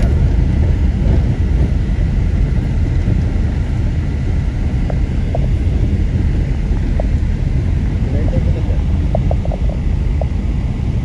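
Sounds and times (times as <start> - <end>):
road and engine rumble: 0.0 - 11.0
wind buffeting: 0.0 - 11.0.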